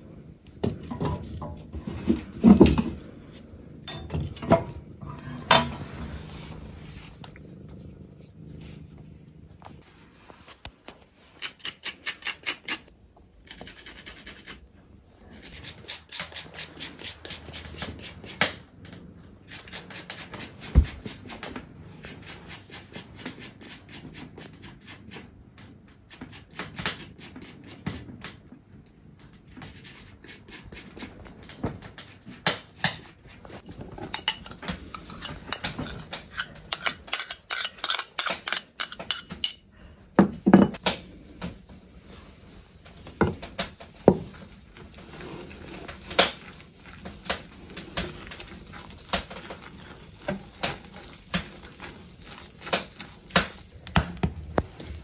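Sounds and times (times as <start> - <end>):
garlic grated on metal grater: 32.8 - 39.6
metal spoon clinking in bowl: 34.1 - 39.6.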